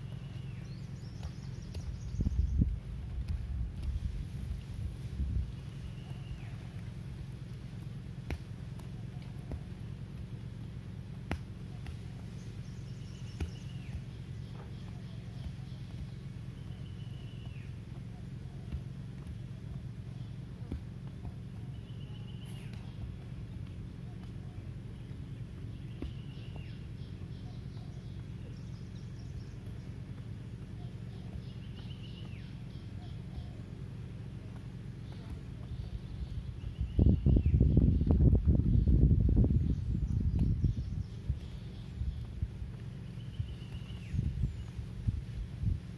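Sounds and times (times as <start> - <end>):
thin whistled call: 0.0 - 2.6, 5.5 - 7.0, 11.7 - 18.9, 21.6 - 23.1, 25.6 - 30.0, 30.7 - 33.7, 42.9 - 45.0
low rumble: 0.0 - 45.9
songbird calling: 0.0 - 45.9.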